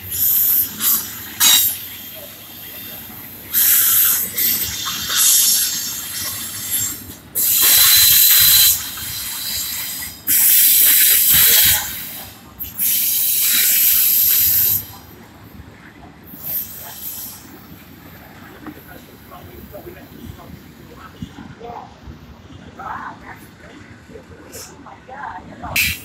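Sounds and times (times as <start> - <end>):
train wheels rushing on rails: 0.0 - 24.8.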